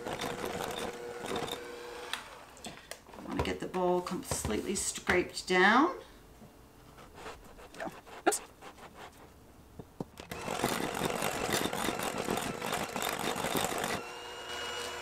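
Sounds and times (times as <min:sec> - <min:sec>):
electric hand mixer running: 0:00.0 - 0:02.6, 0:10.3 - 0:15.0.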